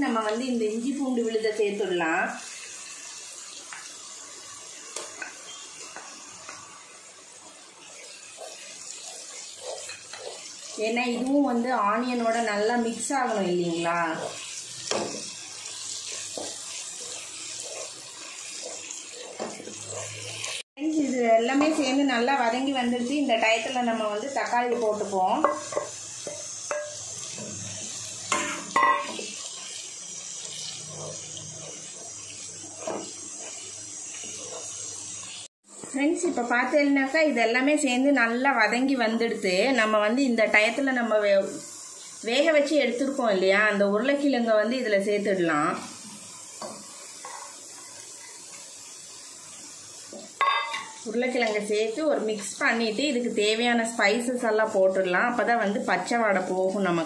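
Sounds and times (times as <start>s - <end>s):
onions sizzling in frying pan: 0.0s - 57.0s
wooden spatula stirring: 7.8s - 20.6s
utensils clicking and scraping pan: 7.8s - 20.7s, 46.6s - 48.6s.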